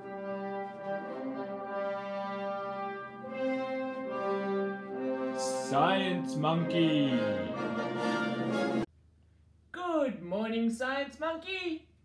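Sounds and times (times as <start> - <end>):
orchestral music with brass: 0.0 - 8.9.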